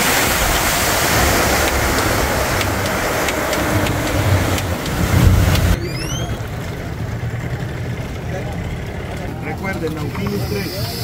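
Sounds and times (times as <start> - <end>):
hull knocking on waves: 0.0 - 5.8
rush of wind and water spray: 0.0 - 5.8
boat engine droning: 0.0 - 11.0.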